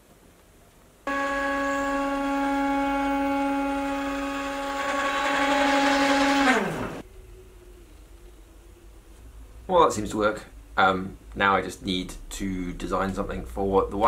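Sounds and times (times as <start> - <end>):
stepper motors whining: 1.1 - 8.2.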